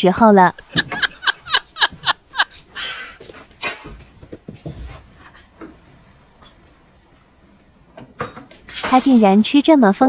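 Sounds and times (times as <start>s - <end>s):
woman giggling: 0.5s - 3.0s
breathy huffing: 2.7s - 3.3s.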